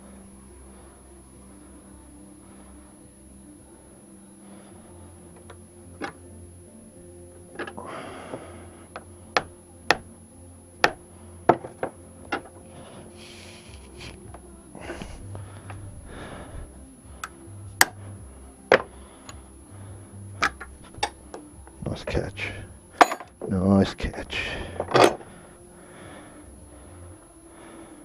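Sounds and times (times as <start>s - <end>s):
metal tools clinking: 23.0s - 23.3s.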